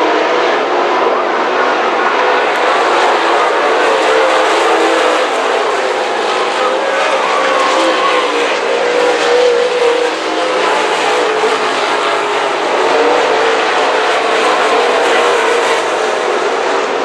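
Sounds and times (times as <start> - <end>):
race car engines: 0.0 - 17.0.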